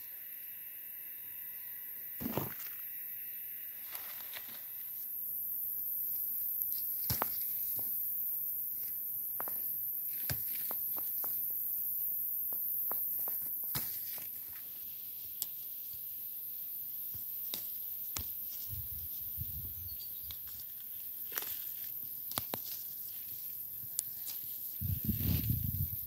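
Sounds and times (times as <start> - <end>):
leaves rustling: 3.7 - 5.0, 13.8 - 26.0
stems snapping and clicking: 21.3 - 22.9.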